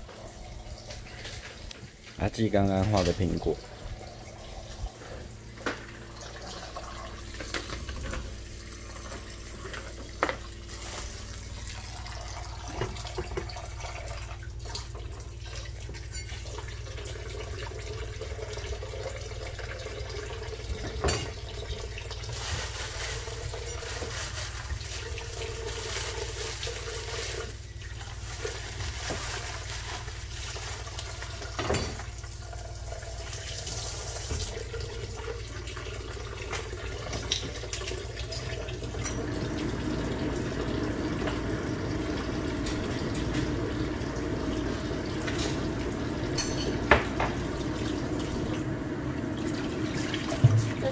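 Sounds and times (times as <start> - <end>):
tap water splashing over vegetables: 12.6 - 16.6, 22.0 - 32.2, 33.6 - 39.5, 45.0 - 50.9.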